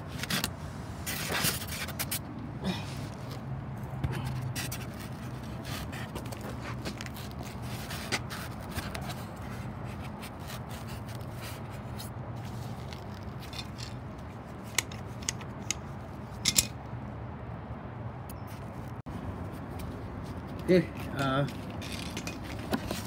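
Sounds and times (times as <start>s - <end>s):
tools and parts clicking and scraping: 4.1s - 16.9s, 19.7s - 23.0s.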